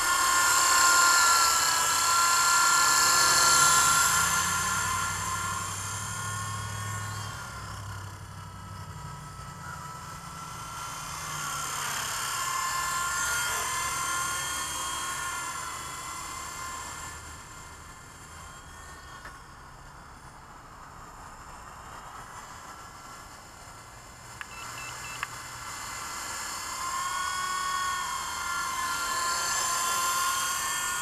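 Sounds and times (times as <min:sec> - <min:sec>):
toy helicopter rotor whining: 0:00.0 - 0:31.0.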